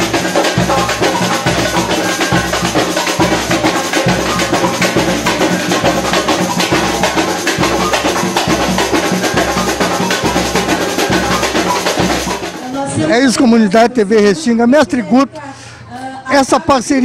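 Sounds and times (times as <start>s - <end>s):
samba music with heavy drums: 0.0s - 15.0s.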